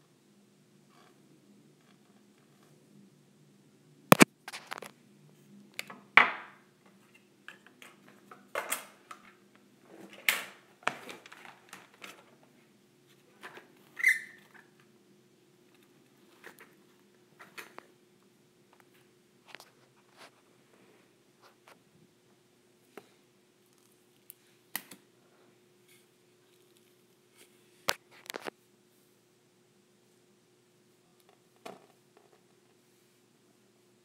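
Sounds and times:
short squeak: 14.0s - 14.4s.

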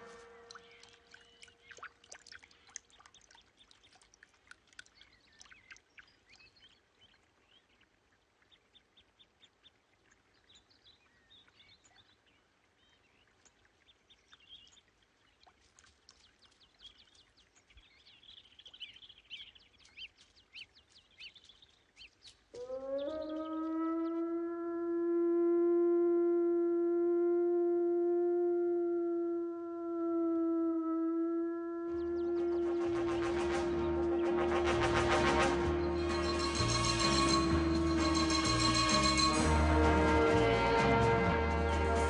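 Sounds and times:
bird chirps and calls: 0.0s - 4.0s.

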